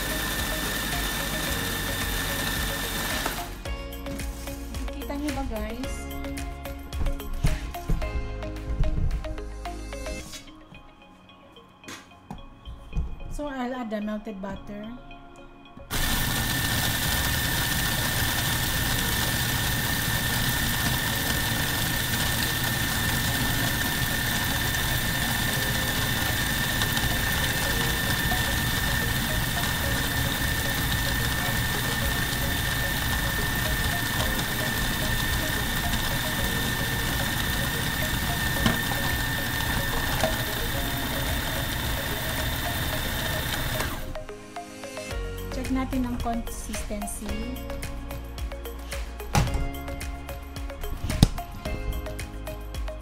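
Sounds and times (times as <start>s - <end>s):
food processor motor whine: 0.0s - 3.8s, 15.9s - 44.2s.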